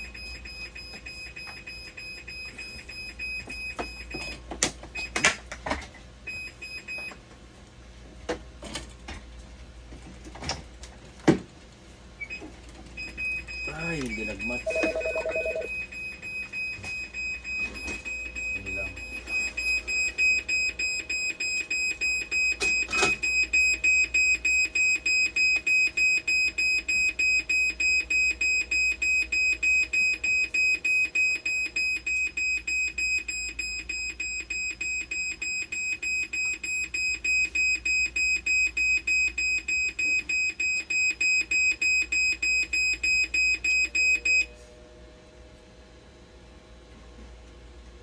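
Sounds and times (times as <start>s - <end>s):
machine alarm beeping rapidly: 13.1s - 44.4s.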